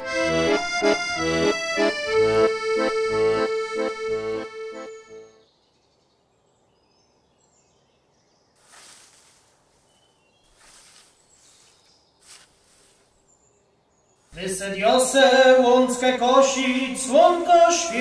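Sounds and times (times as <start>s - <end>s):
faint bird chirps: 5.3s - 14.4s
scythe swishing through grass: 8.6s - 13.2s.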